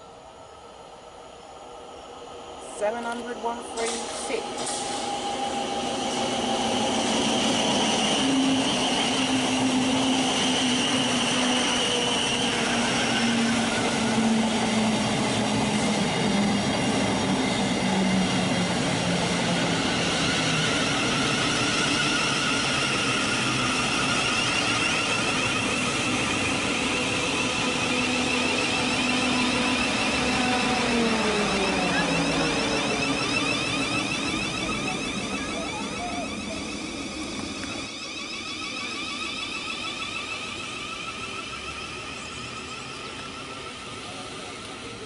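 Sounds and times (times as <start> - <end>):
train passing: 0.0 - 45.0
wheels rushing on rail: 0.0 - 45.0
electric whine falling in pitch: 20.7 - 44.2.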